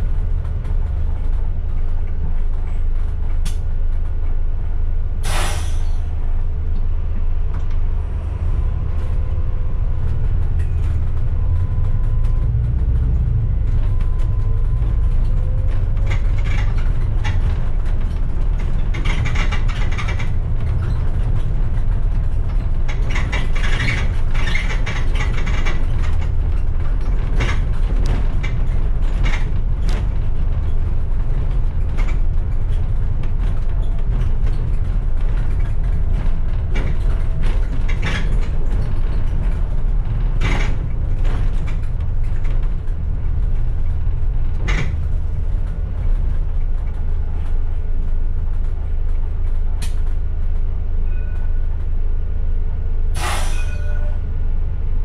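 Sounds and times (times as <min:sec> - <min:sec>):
bus engine and road rumble: 0:00.0 - 0:55.0
short hiss: 0:05.2 - 0:06.0, 0:53.2 - 0:53.7.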